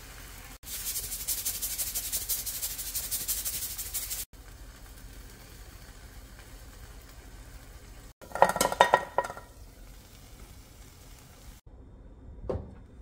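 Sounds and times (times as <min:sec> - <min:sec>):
omelette sizzling in a frying pan: 0:00.0 - 0:11.6
utensil clinking against pan: 0:08.2 - 0:09.5.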